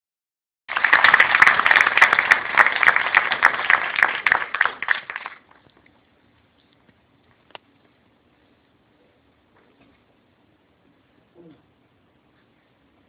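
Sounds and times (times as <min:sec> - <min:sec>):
audience applauding: 0:00.7 - 0:05.6.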